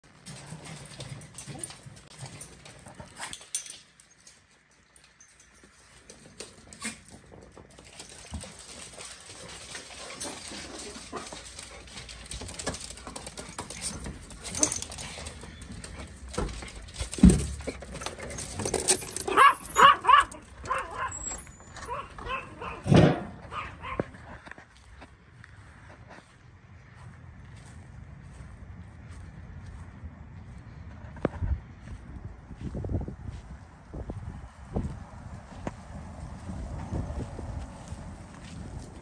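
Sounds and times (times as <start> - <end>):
clicks and knocks of movement: 0.0 - 24.6
dogs yelping: 18.0 - 24.0.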